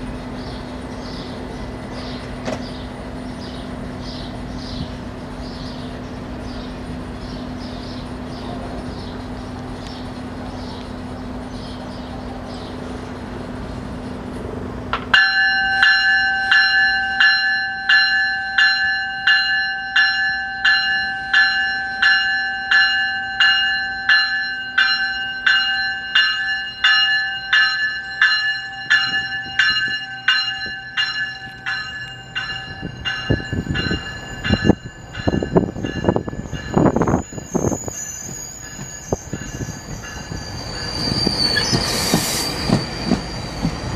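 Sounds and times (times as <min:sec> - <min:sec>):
train humming: 0:00.0 - 0:43.9
train wheels rumbling on rails: 0:00.0 - 0:43.9
train warning bell ringing: 0:15.0 - 0:43.9.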